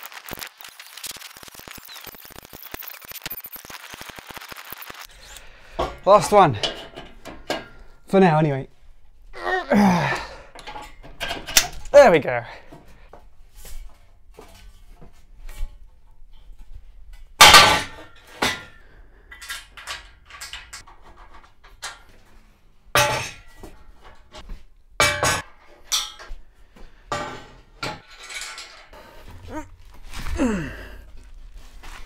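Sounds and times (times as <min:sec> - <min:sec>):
steel bars clanking against frame: 0:05.8 - 0:08.1, 0:10.5 - 0:12.0, 0:17.4 - 0:22.1, 0:23.0 - 0:24.4, 0:25.0 - 0:26.4, 0:27.1 - 0:29.5.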